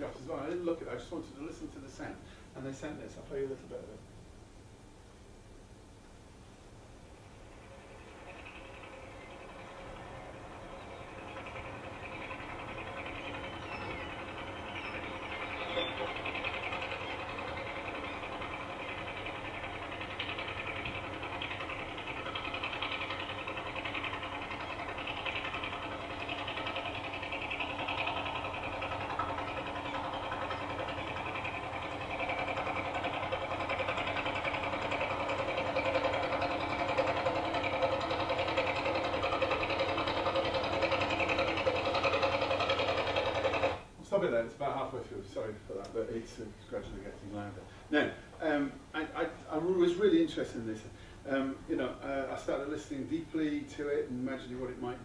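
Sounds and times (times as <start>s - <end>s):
boat engine chugging over loudspeaker: 7.4s - 43.8s.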